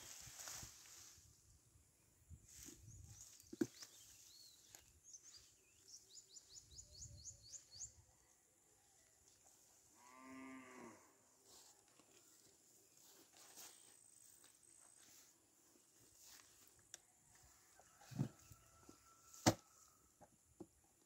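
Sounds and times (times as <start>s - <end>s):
bird chirping: 2.9s - 8.1s
cow mooing: 10.0s - 11.1s.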